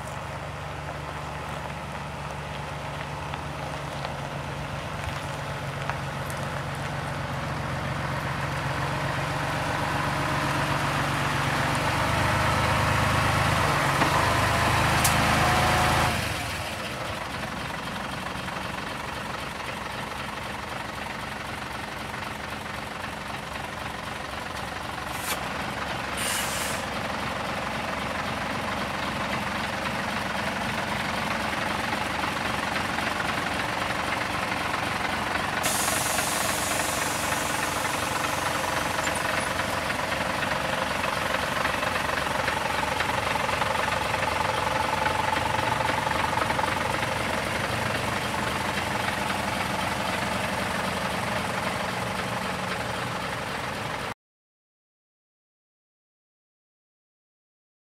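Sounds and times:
diesel engine idling: 0.0 - 54.2
air hissing bursts: 26.2 - 26.9, 35.6 - 38.3.

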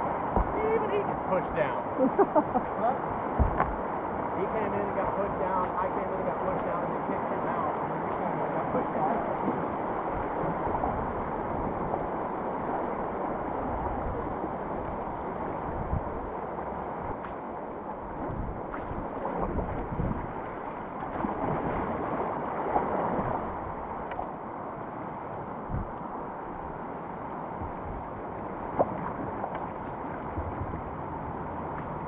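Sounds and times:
wind buffeting microphone: 0.0 - 5.9, 7.4 - 32.0
whitewater rushing: 0.0 - 32.0
low thumps: 0.3 - 0.6, 3.3 - 3.8, 25.6 - 26.1, 27.5 - 28.1.

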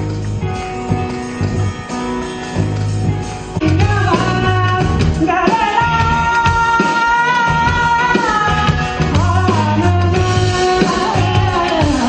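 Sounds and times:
pulsing bass line: 0.0 - 6.7, 7.4 - 12.0
electric guitar lead note: 0.0 - 12.0
live band music: 0.0 - 12.0.

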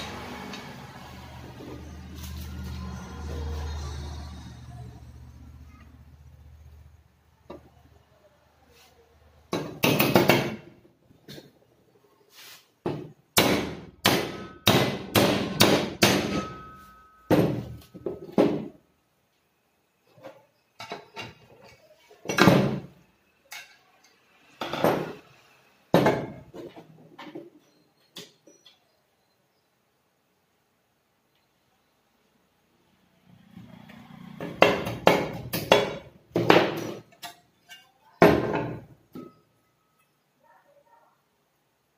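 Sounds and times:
hammer striking metal: 13.4 - 17.8, 34.4 - 39.4.

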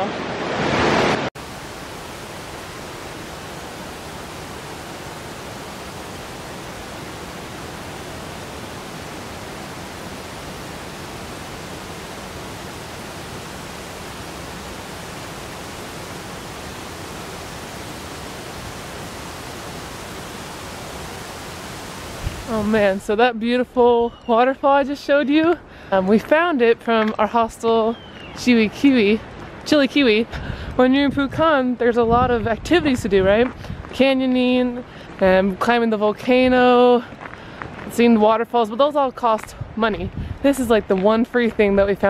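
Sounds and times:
waterfall rushing: 0.0 - 22.7.

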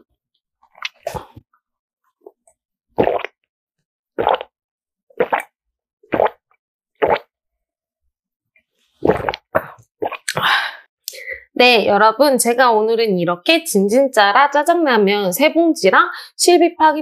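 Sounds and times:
person swallowing a drink: 0.6 - 1.4, 3.0 - 3.5, 4.2 - 4.5, 5.1 - 7.3, 9.0 - 10.5.

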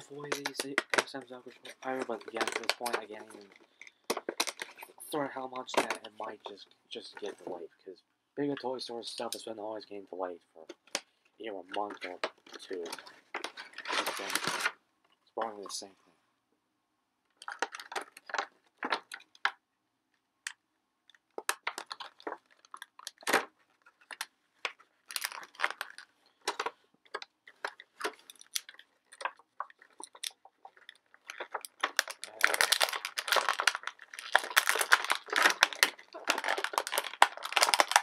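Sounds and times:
plastic packaging crinkling: 0.0 - 6.2, 11.7 - 14.8, 17.4 - 19.6, 21.1 - 38.0.

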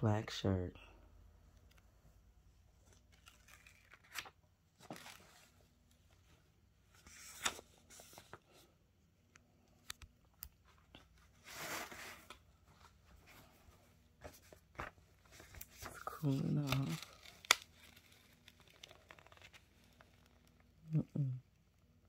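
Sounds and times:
paper rustling and crinkling: 2.8 - 8.7, 10.6 - 20.8.

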